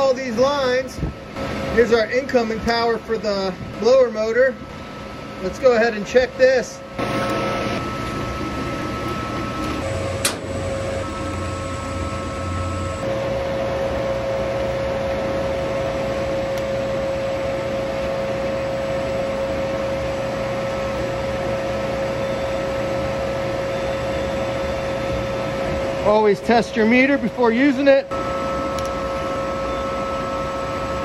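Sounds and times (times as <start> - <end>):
boiler fans humming: 0.0 - 31.0
steady tone: 7.0 - 31.0.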